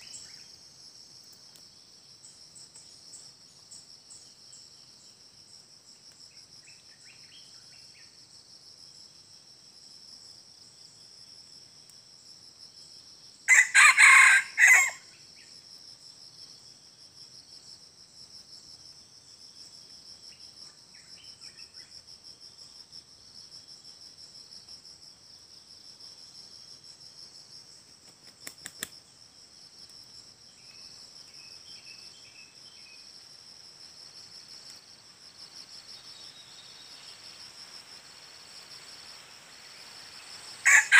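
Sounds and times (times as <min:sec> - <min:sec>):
high-pitched insect chorus: 0:00.0 - 0:40.9
rooster crowing: 0:13.5 - 0:15.1, 0:40.6 - 0:40.9.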